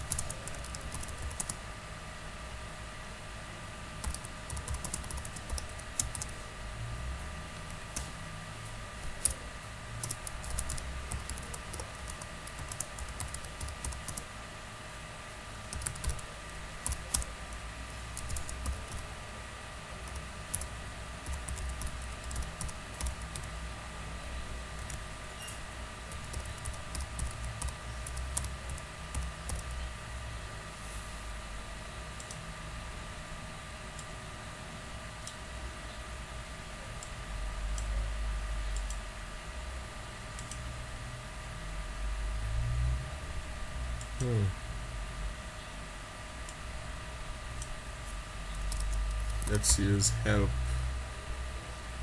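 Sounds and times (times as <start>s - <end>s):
computer keyboard typing: 0.0s - 1.6s, 4.0s - 6.4s, 10.0s - 14.3s, 15.7s - 19.1s, 20.0s - 23.5s, 24.8s - 25.0s, 26.1s - 29.8s, 48.5s - 50.0s.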